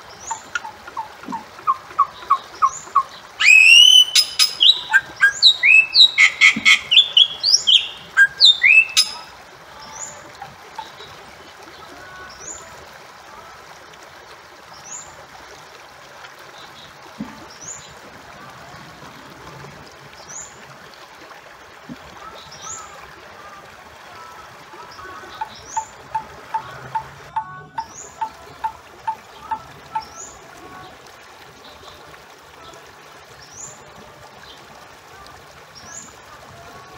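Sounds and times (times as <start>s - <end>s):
bird calling with harsh notes: 0.2s - 9.3s.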